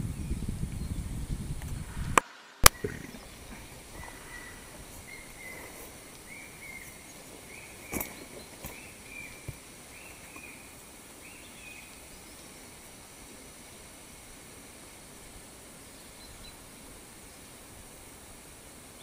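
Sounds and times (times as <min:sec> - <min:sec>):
high insect hum: 0:00.0 - 0:19.0
bird calling: 0:02.6 - 0:12.7.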